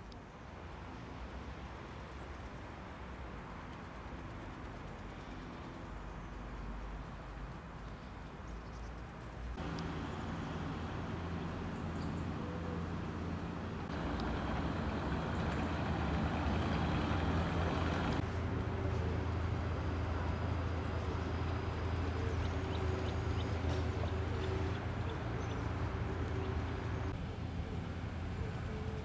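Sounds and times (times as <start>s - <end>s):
low engine rumble: 0.0s - 29.0s.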